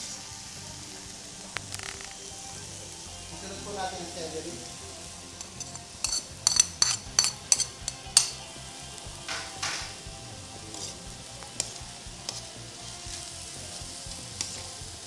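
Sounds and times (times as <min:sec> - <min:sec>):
frying sizzle: 0:00.0 - 0:15.0
utensil scraping pan: 0:05.4 - 0:08.4, 0:10.7 - 0:11.0
metal utensil clinking on wok: 0:05.4 - 0:08.5.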